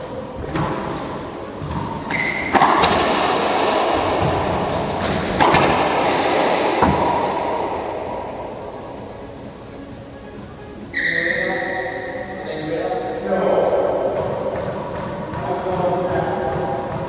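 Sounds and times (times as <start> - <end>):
sneakers squeaking on wood floor: 1.0 - 2.6, 10.9 - 12.4
racquetball cracking off walls: 1.6 - 8.4.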